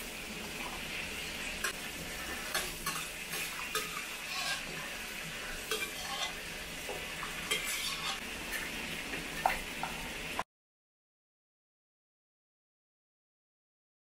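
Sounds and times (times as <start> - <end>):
sizzling hiss from hot pan: 0.0 - 10.4
metal ladle scraping a wok: 1.6 - 6.6, 7.4 - 8.2.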